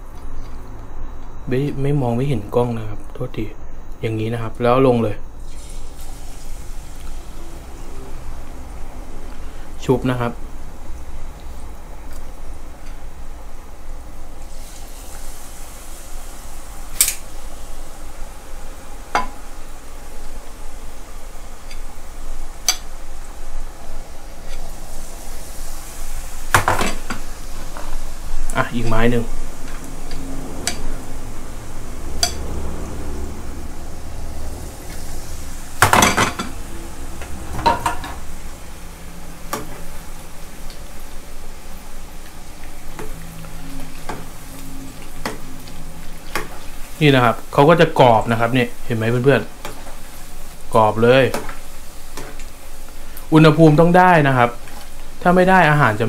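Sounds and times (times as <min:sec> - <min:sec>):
oil sizzling while deep-frying: 0:05.4 - 0:56.0
utensils clattering against pan: 0:35.8 - 0:36.6, 0:37.6 - 0:38.3.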